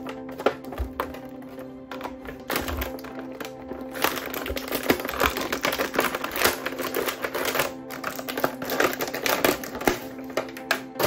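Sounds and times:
background music: 0.0s - 11.0s
plastic toy pieces clicking: 0.3s - 11.0s.

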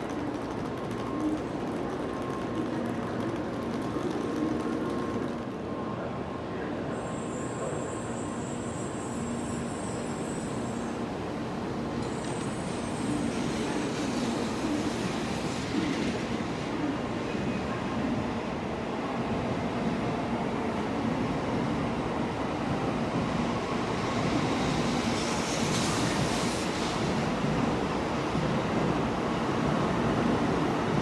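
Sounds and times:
train humming: 0.0s - 31.0s.

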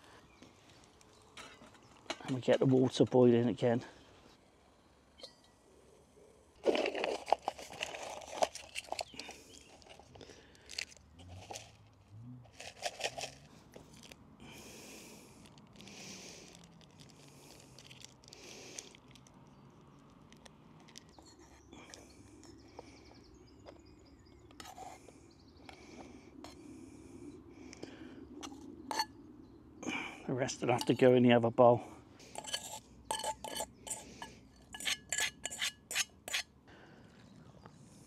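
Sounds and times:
crinkling and rustling: 6.6s - 14.2s, 15.4s - 22.0s.

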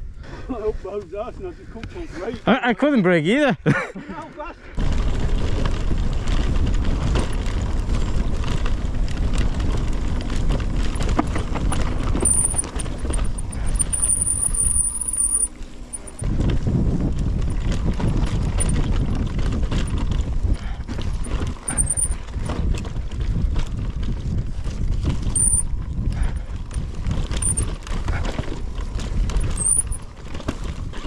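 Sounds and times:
bike rattling and knocking: 4.8s - 31.0s
wind rumbling on microphone: 4.8s - 31.0s.

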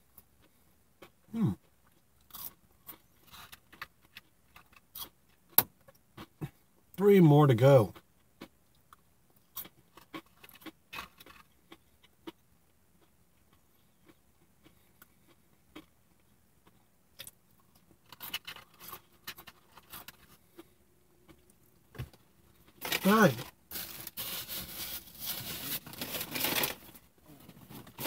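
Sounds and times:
chewing crisp fried food: 0.0s - 6.9s, 7.9s - 23.9s
paper sleeve crinkling: 22.8s - 27.0s.

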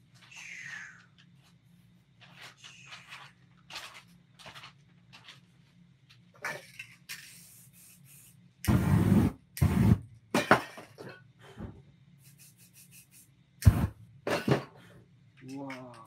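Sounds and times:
spray-paint cans hissing: 7.1s - 10.0s.

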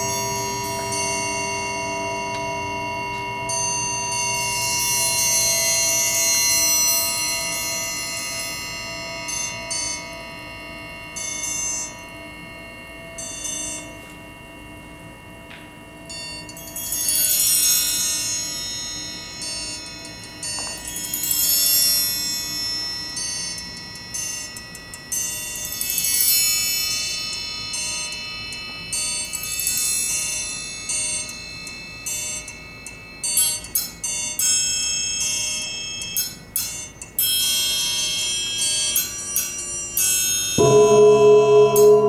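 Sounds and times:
triangles ringing: 40.6s - 42.0s.

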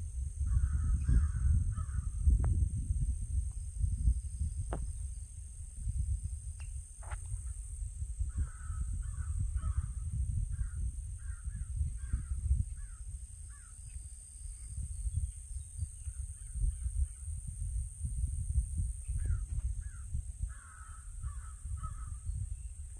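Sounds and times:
wind rumble on microphone: 0.0s - 22.9s
crow cawing: 0.5s - 2.1s, 8.3s - 10.0s, 19.2s - 22.2s.

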